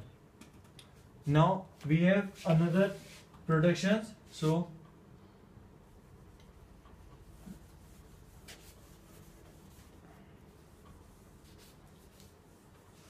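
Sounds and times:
eraser wiping whiteboard: 2.2 - 3.3, 6.7 - 13.0.

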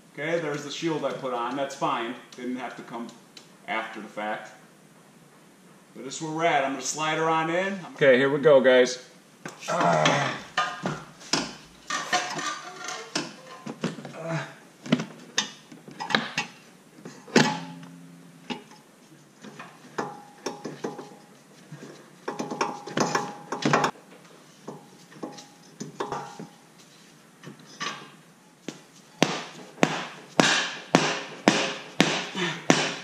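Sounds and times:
metal clunks and clinks: 17.3 - 18.8, 24.7 - 26.4.

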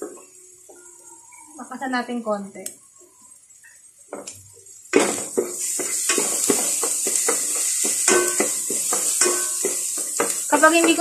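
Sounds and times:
oil sizzling in a pan: 0.0 - 11.0
spatula scraping and tapping pan: 5.0 - 11.0.

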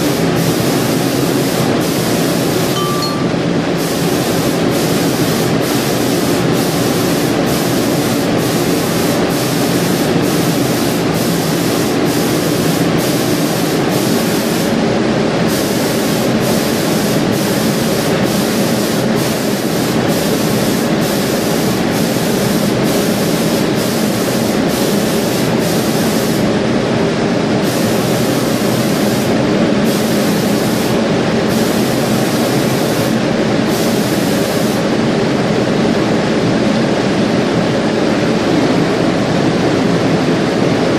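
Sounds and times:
mechanical hum: 0.0 - 40.9
spray head hissing: 27.6 - 34.8.

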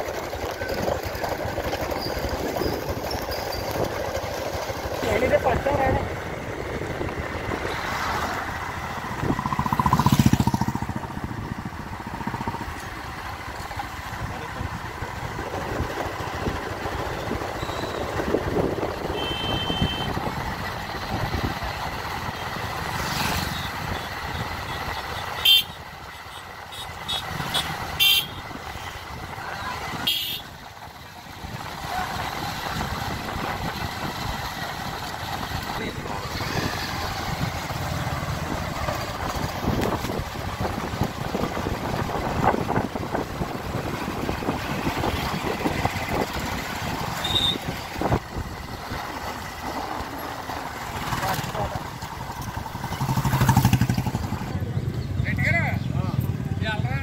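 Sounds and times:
motorcycles passing: 0.0 - 57.0.

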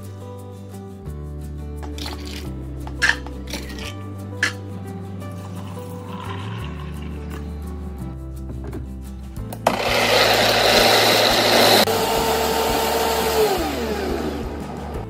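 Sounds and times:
blender whirring and whining: 9.6 - 15.0.

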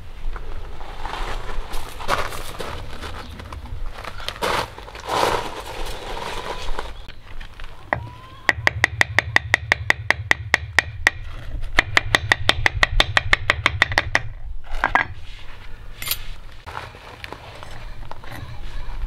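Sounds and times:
metal mould knocking on concrete: 7.9 - 11.2, 11.8 - 15.2.

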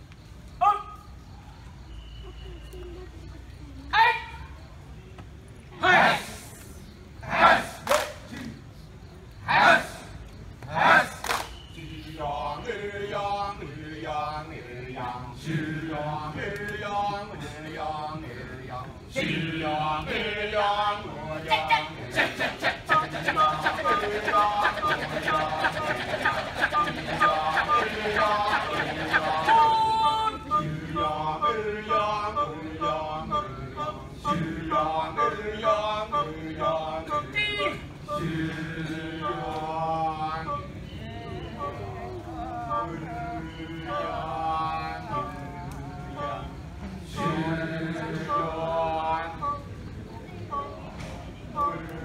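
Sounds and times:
men chanting melodic phrases: 10.7 - 49.7
low vocal drone: 11.8 - 52.0.

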